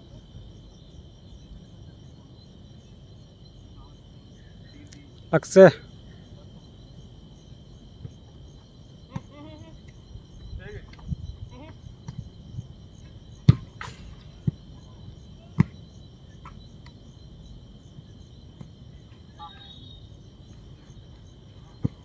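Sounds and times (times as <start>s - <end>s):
football kick thumps: 13.4s - 14.7s, 15.6s - 15.8s, 21.8s - 22.0s.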